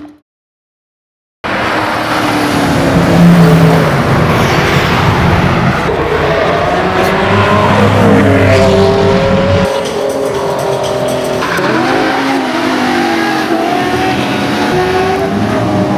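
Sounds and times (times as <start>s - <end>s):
sports car engines revving: 1.5s - 15.9s.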